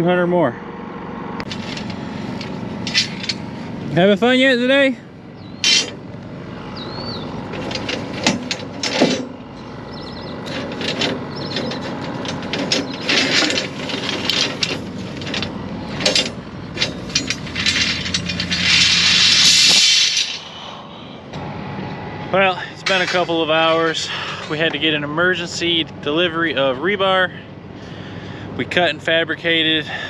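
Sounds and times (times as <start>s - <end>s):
low engine hum: 0.0s - 30.0s
steel bars clanking and scraping: 1.4s - 4.3s, 5.4s - 6.2s, 6.8s - 21.4s, 22.4s - 25.0s
loud rushing noise: 16.9s - 22.2s.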